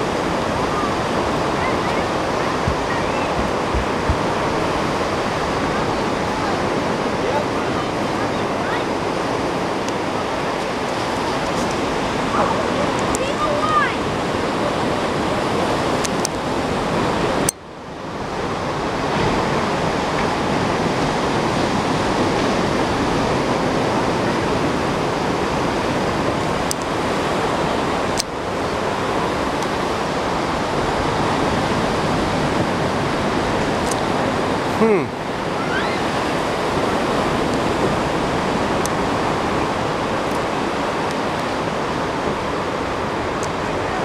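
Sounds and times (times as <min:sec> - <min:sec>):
steady rushing noise: 0:00.0 - 0:44.0.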